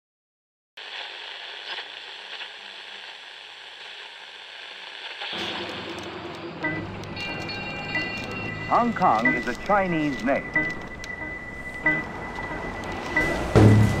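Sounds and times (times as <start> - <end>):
rain hissing: 0.8 - 6.8.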